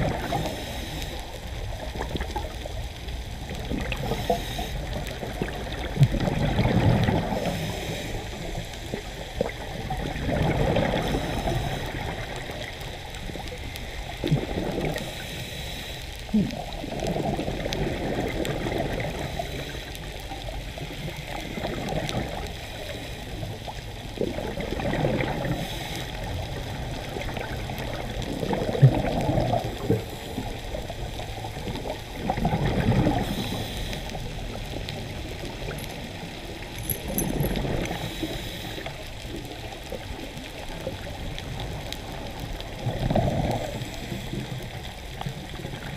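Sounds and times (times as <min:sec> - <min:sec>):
faint hiss: 0:00.0 - 0:02.5, 0:03.9 - 0:05.6, 0:10.9 - 0:17.4, 0:25.3 - 0:28.0, 0:32.9 - 0:34.6, 0:37.6 - 0:42.8
exhaled bubbles gurgling underwater: 0:00.0 - 0:45.9.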